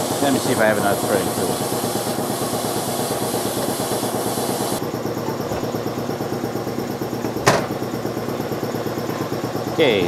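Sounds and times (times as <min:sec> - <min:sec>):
high hiss: 0:00.0 - 0:04.8
workshop machinery hum: 0:00.0 - 0:10.0.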